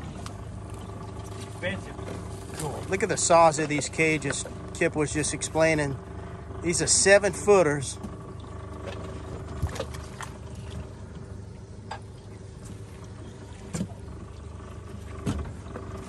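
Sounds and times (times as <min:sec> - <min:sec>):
traps knocking and rattling in metal boat: 0:00.0 - 0:05.8, 0:07.2 - 0:10.8, 0:14.9 - 0:16.0
boat motor idling: 0:00.0 - 0:16.0.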